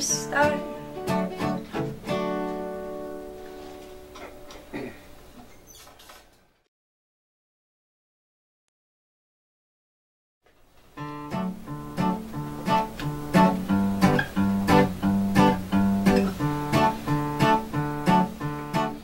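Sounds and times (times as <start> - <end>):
acoustic guitar strumming: 0.0 - 4.7, 11.0 - 19.0.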